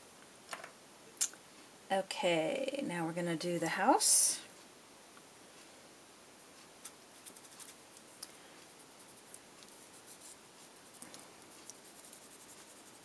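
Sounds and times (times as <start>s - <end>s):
pencil scratching on paper: 8.8s - 13.0s.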